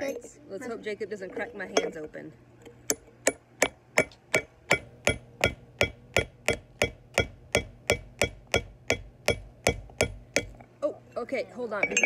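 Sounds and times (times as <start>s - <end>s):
hammer striking steel chisel: 2.9s - 10.6s.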